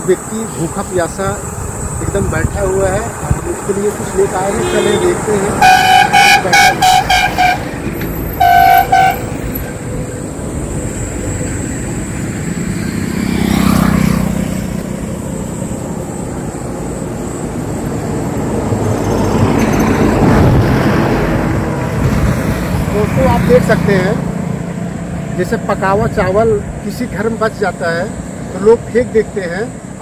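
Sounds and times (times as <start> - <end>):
vehicles passing close by: 0.0 - 30.0
vehicle horn blast: 4.4 - 7.7, 8.4 - 9.4.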